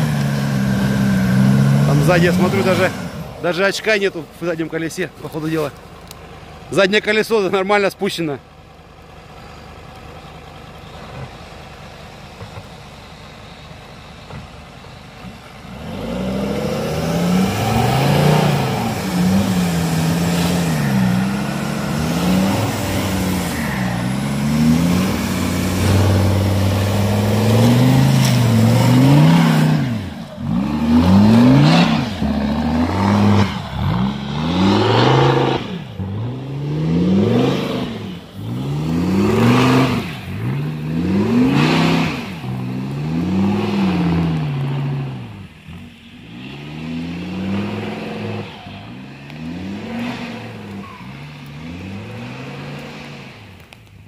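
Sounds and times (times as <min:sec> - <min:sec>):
engine revving hard: 0:00.0 - 0:03.3, 0:15.7 - 0:45.5, 0:46.1 - 0:53.5.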